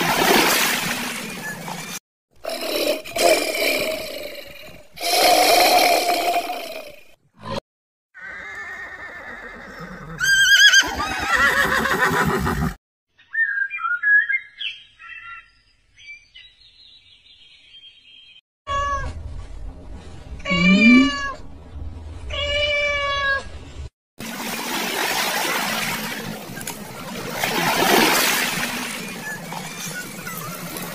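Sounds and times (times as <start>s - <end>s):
horse whinnying: 8.2s - 12.8s
high bird chirps: 13.2s - 18.4s
cat meowing: 20.5s - 21.4s.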